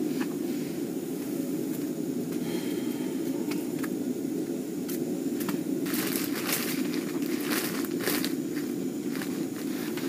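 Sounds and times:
low rushing noise: 0.0s - 7.2s.

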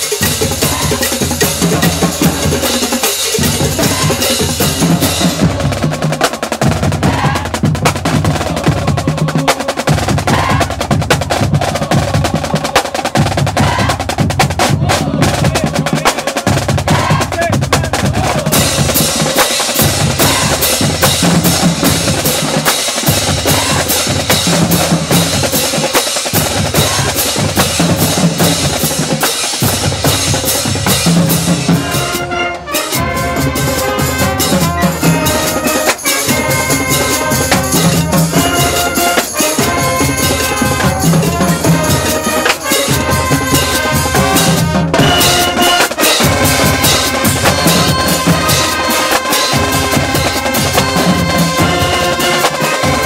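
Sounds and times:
snare drum strokes and rolls: 0.0s - 53.0s
bass drum pattern: 6.6s - 22.2s.

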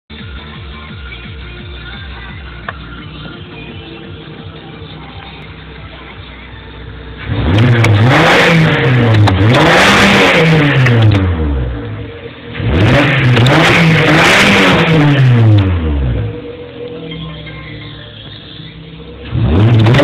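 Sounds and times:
car engine revving hard: 7.2s - 16.6s, 19.0s - 20.0s.

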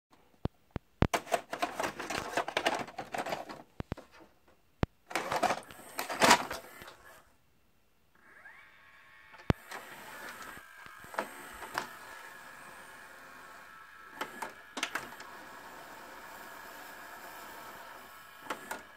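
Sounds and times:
motor whirring hum: 8.2s - 18.9s.

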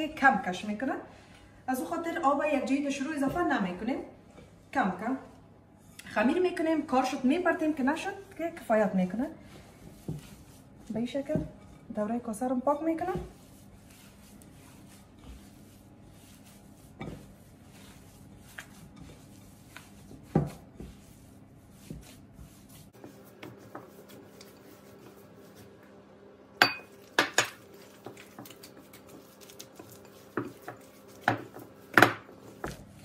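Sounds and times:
hands kneading dough: 6.1s - 26.1s, 26.8s - 33.0s
glass bowl clacking: 26.6s - 27.6s.

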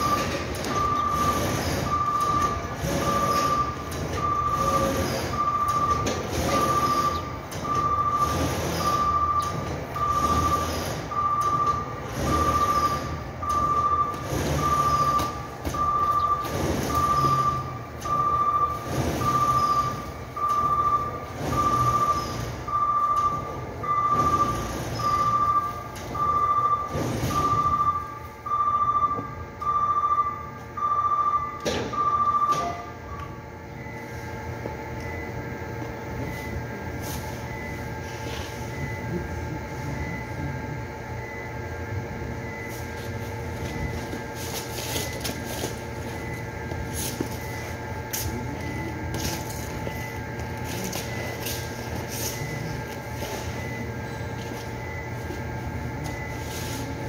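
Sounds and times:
electronic warning beeps: 0.0s - 57.0s
pulsing factory machinery: 0.0s - 57.0s.

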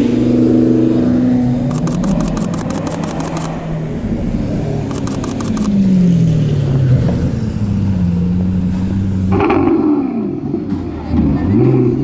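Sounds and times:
car engine running: 1.5s - 6.0s
short rapid rattle: 1.7s - 3.5s.

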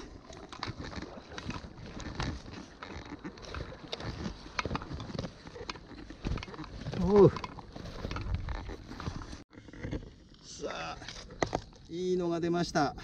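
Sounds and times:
water splashing and lapping: 0.0s - 10.3s.

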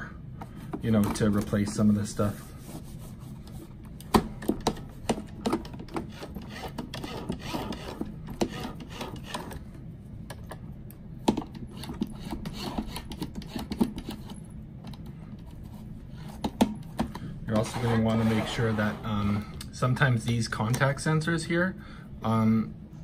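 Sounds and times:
rubbing and scraping plastic: 4.6s - 9.7s, 15.4s - 19.3s.

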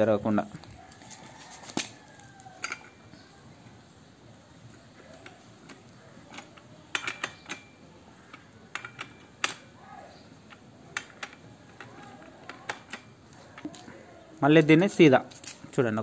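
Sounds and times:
spanner clicking on metal nut: 5.1s - 9.8s, 10.5s - 13.8s.

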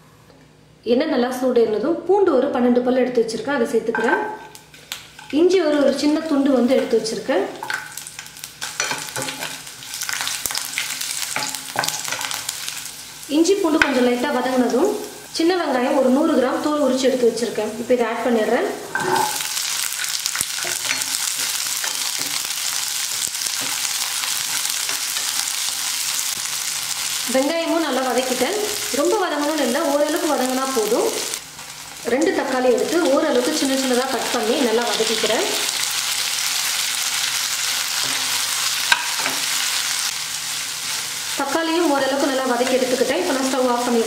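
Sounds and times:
shallots sizzling in hot oil: 4.0s - 44.0s
spatula tapping pan: 11.3s - 12.4s.

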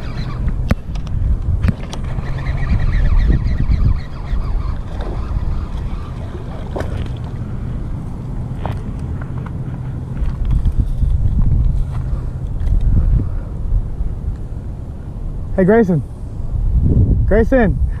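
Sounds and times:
wind buffeting microphone: 0.0s - 18.0s
fish splashing in water: 4.4s - 7.6s.

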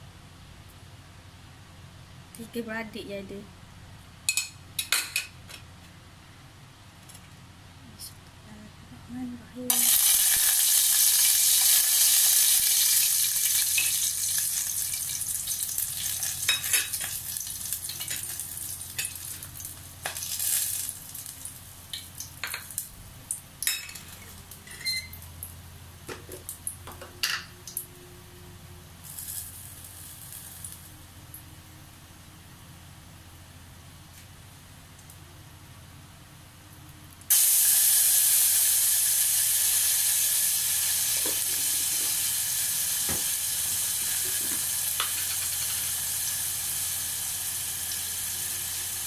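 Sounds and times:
spices sizzling in hot oil: 9.7s - 25.4s, 29.0s - 31.0s, 37.3s - 49.0s.

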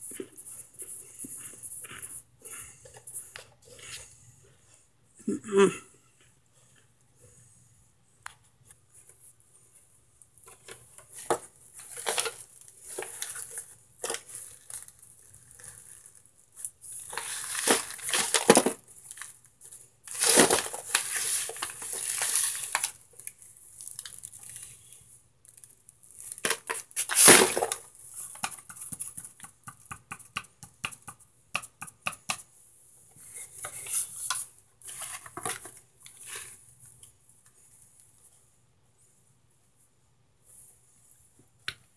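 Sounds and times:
foil and cardboard crinkling: 11.2s - 28.4s
hard chunks crunching and crackling: 20.1s - 24.6s.

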